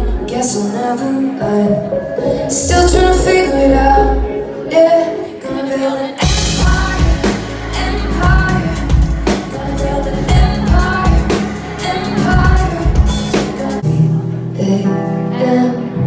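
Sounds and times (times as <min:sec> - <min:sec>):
woman singing into microphone: 0:00.0 - 0:16.0
band accompaniment: 0:05.5 - 0:14.3
deep steady beat: 0:06.2 - 0:13.8.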